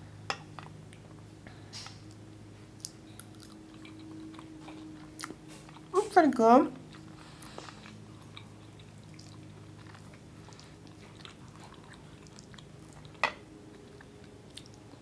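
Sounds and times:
close-up chewing: 2.0 - 6.0, 6.8 - 15.0.

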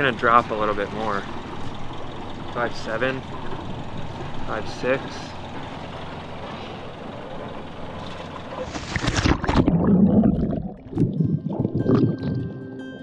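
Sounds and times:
muffled underwater rush: 6.4 - 12.6
loud splash and bubbling: 8.0 - 12.6.

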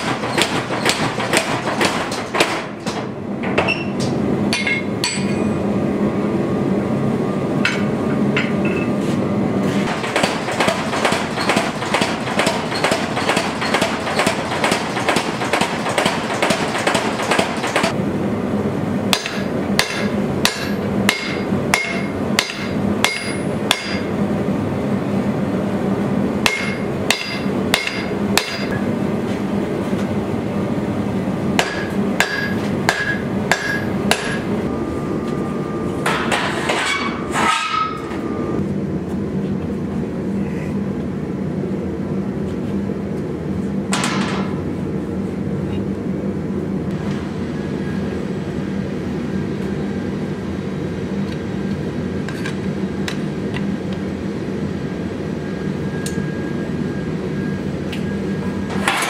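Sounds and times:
power hammer pounding steel: 0.0 - 3.1, 9.9 - 18.0, 19.1 - 24.1, 26.4 - 28.8, 31.6 - 34.5
hand hammer ringing on anvil: 19.2 - 24.0, 26.5 - 28.7, 31.6 - 34.4.

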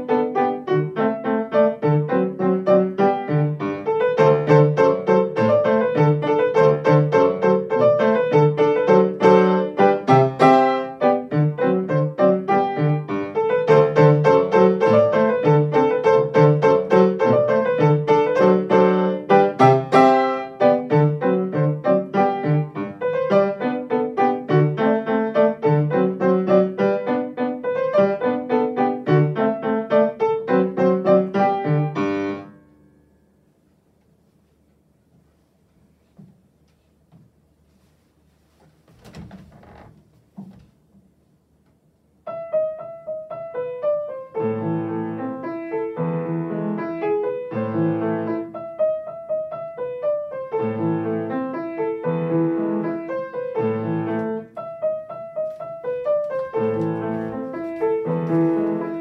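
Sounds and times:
solo classical piano: 0.0 - 59.0.

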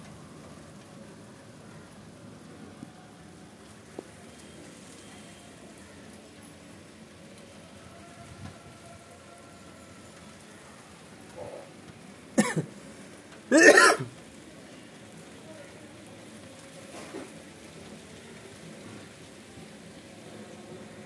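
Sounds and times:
faint steady hiss: 0.0 - 21.0
person throat sounds: 12.4 - 12.6, 13.5 - 14.1.

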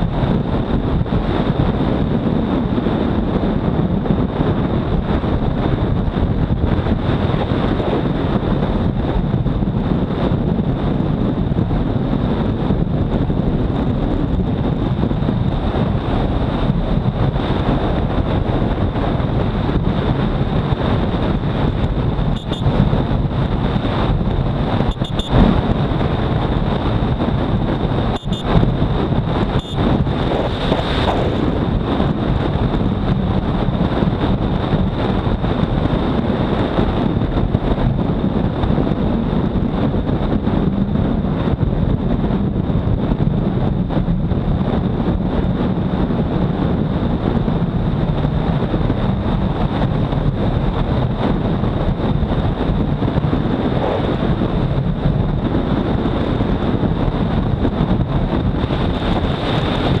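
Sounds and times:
motorcycle engine drone: 0.0 - 60.0
wind rushing over microphone: 0.0 - 60.0
thin high whine: 22.3 - 22.8, 24.8 - 25.8, 27.7 - 28.8, 29.4 - 31.5.

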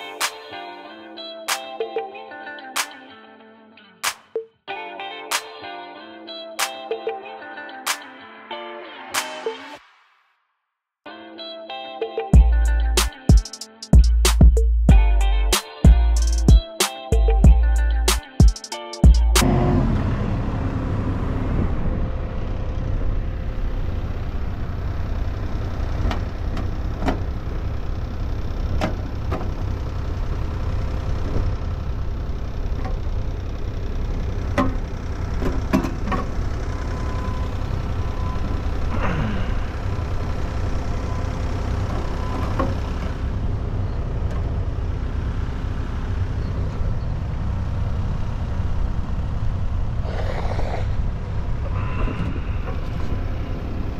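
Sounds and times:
diesel engine running: 19.0 - 53.9.

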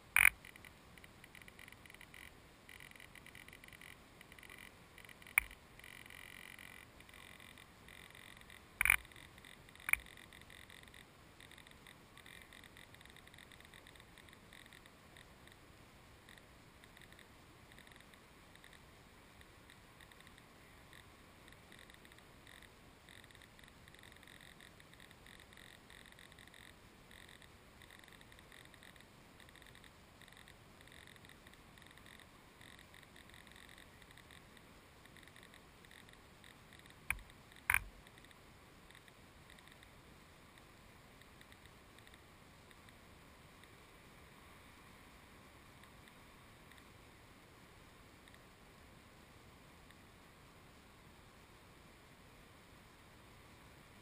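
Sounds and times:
faint steady hiss: 0.0 - 54.0
sharp clicks: 0.1 - 14.8, 35.1 - 39.8.

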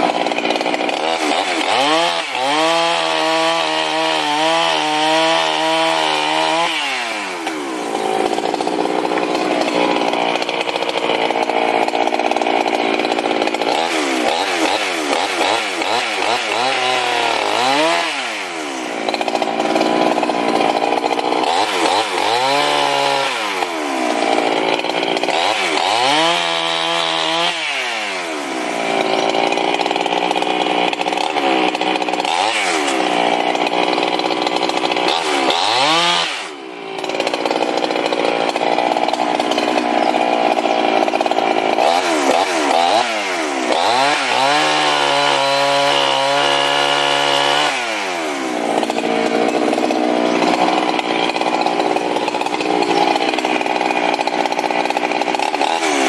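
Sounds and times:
chainsaw cutting logs: 0.0 - 56.0.

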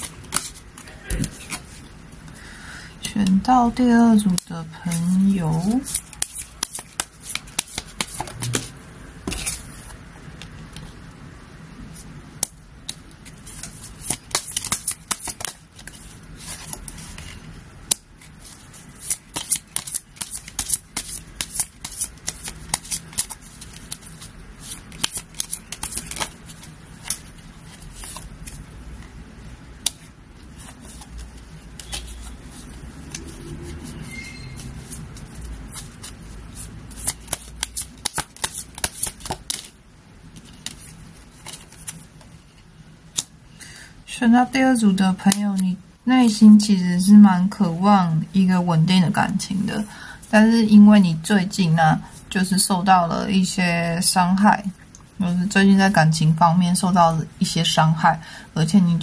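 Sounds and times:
cards being shuffled: 0.0 - 1.9, 4.3 - 10.9, 12.4 - 29.1, 29.8 - 34.0, 34.6 - 43.3.

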